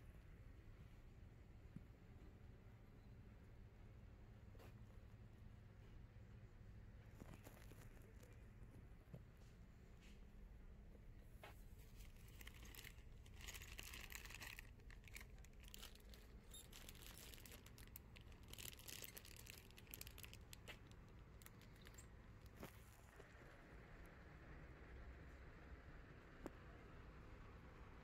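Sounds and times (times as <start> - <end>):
faint crinkling and crackling: 7.0 - 10.3, 11.2 - 23.6.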